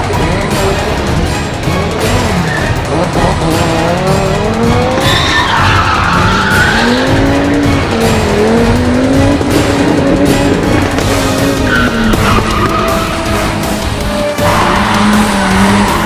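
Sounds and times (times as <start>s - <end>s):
background music: 0.0s - 16.0s
car engine revving: 0.0s - 16.0s
tyre squeal: 2.2s - 2.9s, 4.9s - 7.2s, 11.0s - 13.7s.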